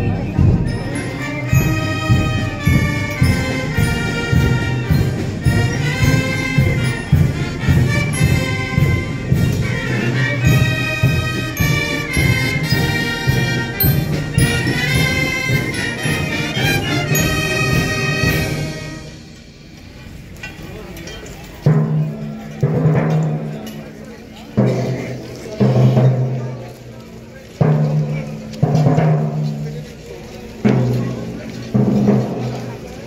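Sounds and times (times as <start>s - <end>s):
brass band playing a march: 0.0s - 19.6s, 30.6s - 32.9s
steady low drum beat: 0.0s - 19.7s, 27.5s - 33.0s.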